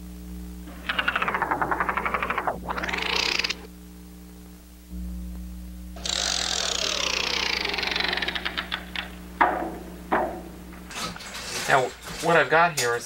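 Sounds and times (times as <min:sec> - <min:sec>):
motor hum: 0:00.0 - 0:11.2
bicycle freewheel clicking: 0:06.0 - 0:09.1
sharp clicks: 0:07.4 - 0:09.2.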